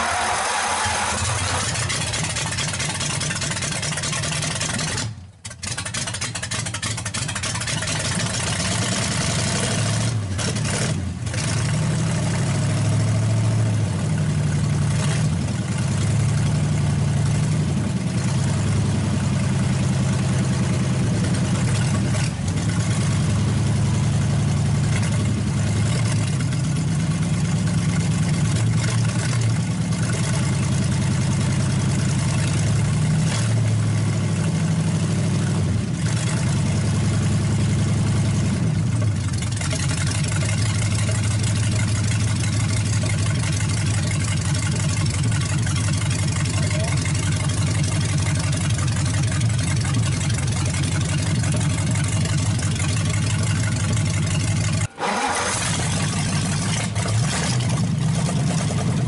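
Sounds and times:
engine stumbling and idling: 0:00.0 - 0:59.0.

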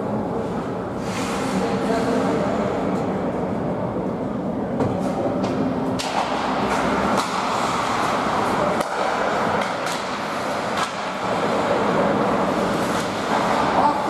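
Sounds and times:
hockey sticks and puck clacking: 0:05.4 - 0:14.0
skate blades scraping ice: 0:06.7 - 0:13.8.

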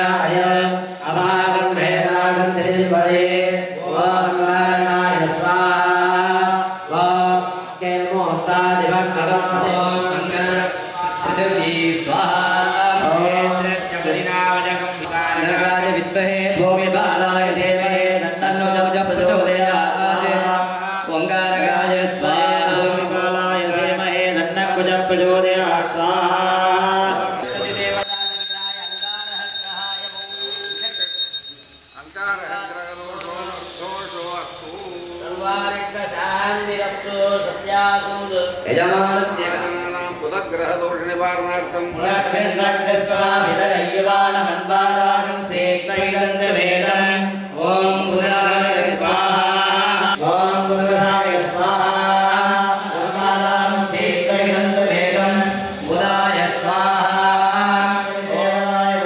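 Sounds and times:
people chanting: 0:00.0 - 0:28.1, 0:32.4 - 0:40.6, 0:41.4 - 0:59.0
bell ringing: 0:27.4 - 0:32.2.

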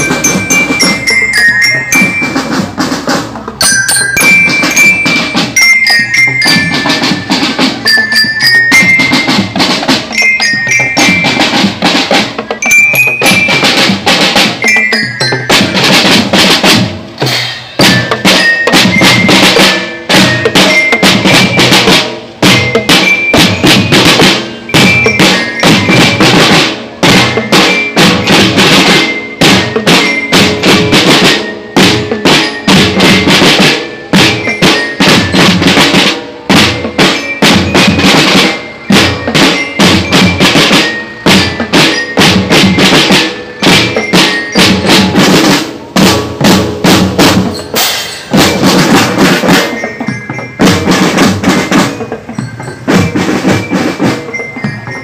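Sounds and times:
snare and marching drums: 0:00.0 - 0:55.0
hand cymbals crashing: 0:12.6 - 0:54.4.

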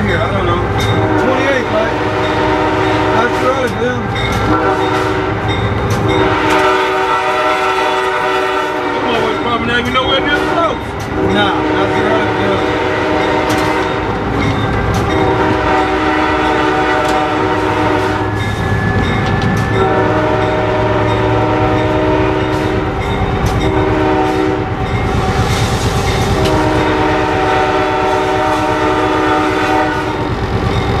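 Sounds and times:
low rumble of running train: 0:00.0 - 0:31.0
locomotive air horn blasts: 0:00.9 - 0:03.7, 0:04.4 - 0:14.2, 0:15.2 - 0:18.4, 0:19.7 - 0:23.0, 0:23.6 - 0:24.8, 0:26.3 - 0:30.4.

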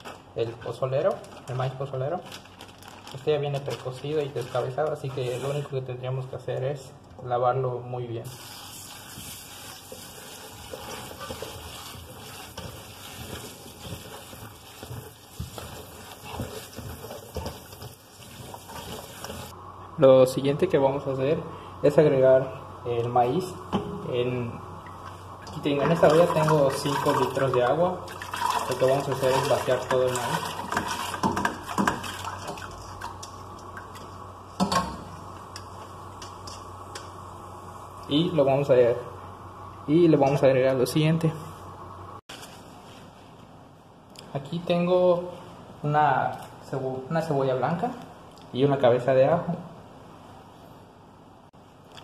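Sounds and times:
hands rubbing wet kernels: 0:08.5 - 0:19.5
tap water splashing: 0:30.7 - 0:33.3.

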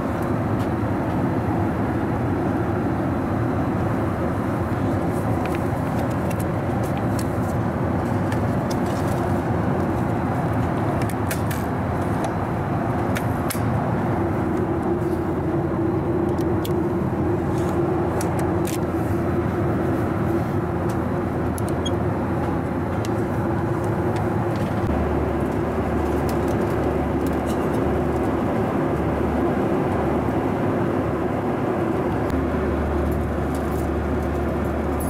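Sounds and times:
airplane cabin roar: 0:00.0 - 0:35.0.

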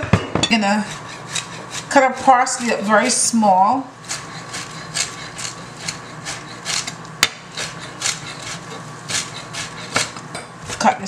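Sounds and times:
knife chopping on cutting board: 0:04.1 - 0:10.9.

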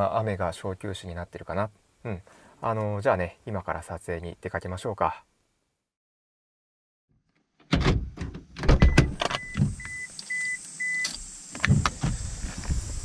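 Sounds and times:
car door latch clunks: 0:07.7 - 0:09.9
car warning chime beeping: 0:08.9 - 0:11.1
steady hiss: 0:09.6 - 0:13.0.

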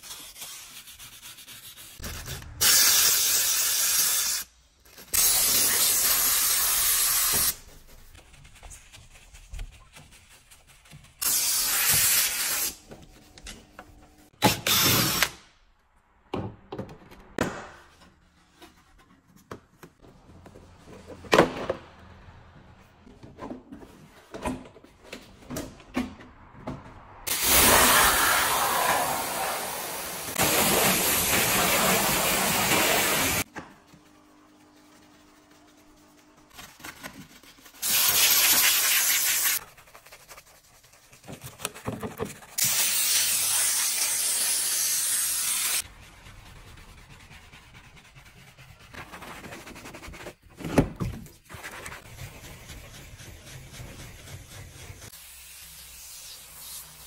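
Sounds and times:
steam cleaner hissing: 0:05.2 - 0:07.6, 0:27.3 - 0:33.4, 0:37.8 - 0:39.6, 0:42.6 - 0:45.8.

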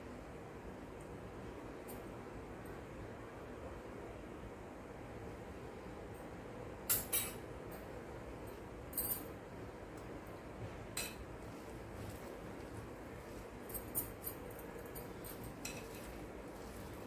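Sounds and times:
hand mixing batter: 0:14.6 - 0:17.0.

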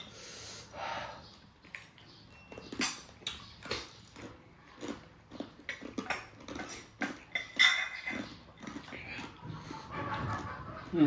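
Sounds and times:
chewing: 0:01.2 - 0:11.0
utensils clicking on dishes: 0:06.1 - 0:08.3.

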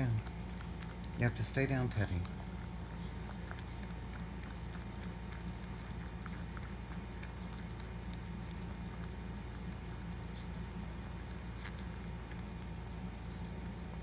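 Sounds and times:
dog licking: 0:00.0 - 0:14.0.

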